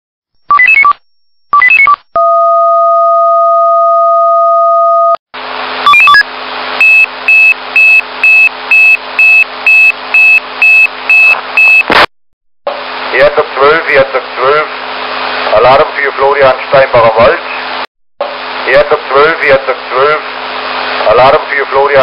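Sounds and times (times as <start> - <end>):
high pager alarm beeps: 5.8 - 6.2, 6.8 - 11.9
selective-call tone sequence: 5.8 - 6.2, 6.8 - 12.0
two-note fire-alarm tone: 6.8 - 11.9
radio hiss and hum: 12.7 - 14.8, 15.4 - 20.4, 21.0 - 22.0.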